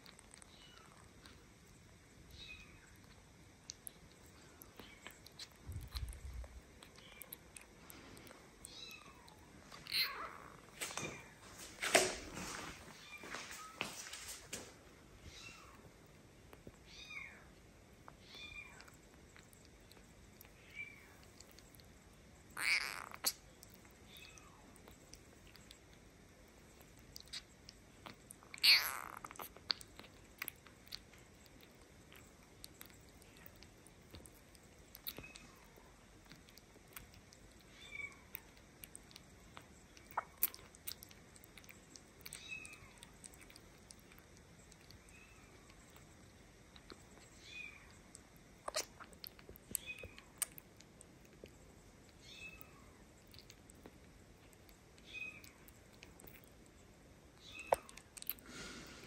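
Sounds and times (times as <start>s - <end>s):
kitten suckling from bottle: 0.1s - 11.3s, 15.2s - 58.5s
kitten squeaking: 8.6s - 11.3s, 22.6s - 23.4s, 28.5s - 29.5s, 48.6s - 49.1s, 57.4s - 58.0s.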